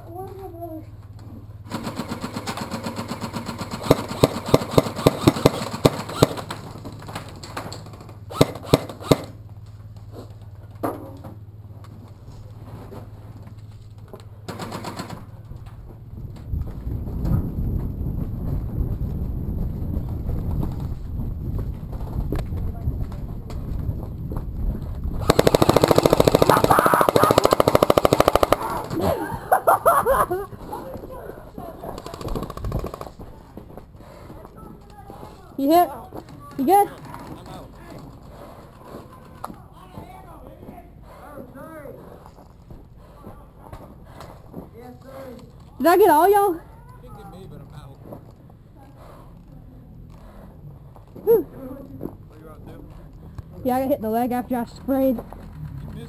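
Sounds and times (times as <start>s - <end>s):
airsoft full-auto gunfire rattle: 1.7s - 9.4s, 14.5s - 15.4s, 25.2s - 29.0s, 31.8s - 33.2s
sharp loud gun cracks: 1.7s - 9.4s, 25.2s - 29.0s.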